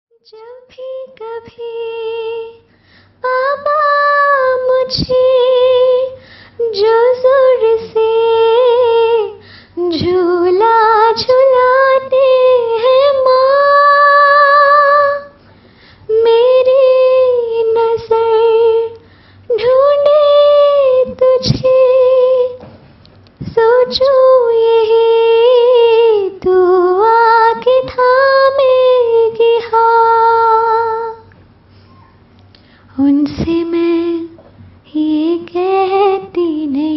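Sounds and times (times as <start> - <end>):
woman singing unaccompanied: 0.1 - 15.4, 16.1 - 22.7, 23.4 - 31.3, 32.9 - 36.9.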